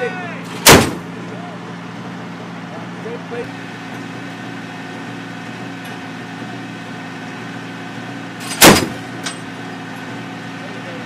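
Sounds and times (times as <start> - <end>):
vehicle engine idling: 0.0 - 11.0
loud gunshot: 0.6 - 1.0, 8.4 - 9.0.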